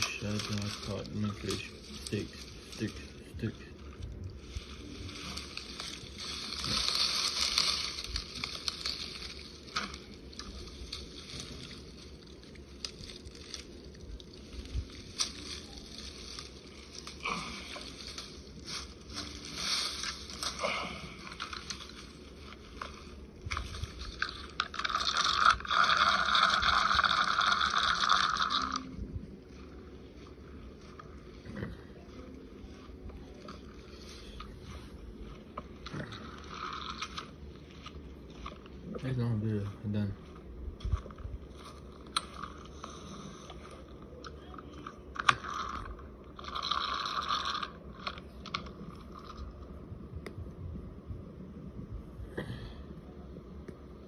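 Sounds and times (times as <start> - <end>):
twigs snapping: 0.0 - 3.2, 3.8 - 28.9
fishing reel whirring: 0.0 - 20.6, 21.2 - 31.0, 35.9 - 38.0, 45.2 - 49.6
dry grass rustling and crackling: 0.0 - 52.1
fishing reel clicks: 45.2 - 48.2.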